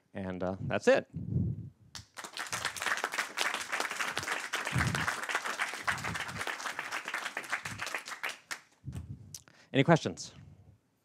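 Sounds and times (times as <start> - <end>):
audience applauding: 2.0 - 8.8.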